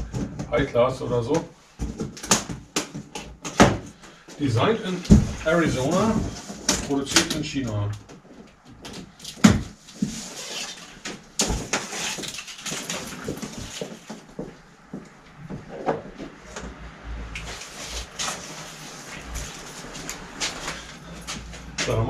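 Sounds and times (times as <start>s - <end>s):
plastic straps cut off cardboard box: 9.2s - 14.0s.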